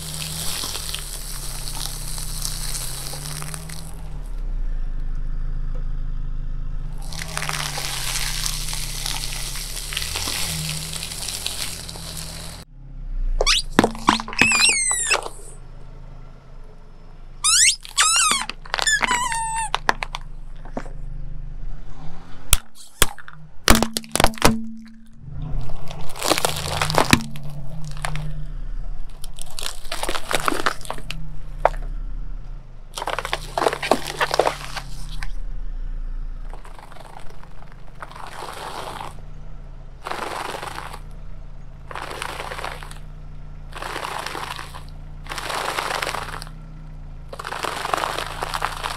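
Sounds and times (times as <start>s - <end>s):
sharp cracks: 0.0s - 4.2s, 7.0s - 12.6s, 17.4s - 21.0s, 22.5s - 28.4s, 29.0s - 31.9s, 33.0s - 35.4s, 36.4s - 39.3s, 40.0s - 41.2s, 41.8s - 46.6s, 47.2s - 48.9s
crinkling crunching under tyre: 0.0s - 6.0s, 6.8s - 12.7s, 13.4s - 16.5s, 17.4s - 48.9s
high gliding squeaks: 13.4s - 15.6s, 17.4s - 20.9s, 33.0s - 35.4s.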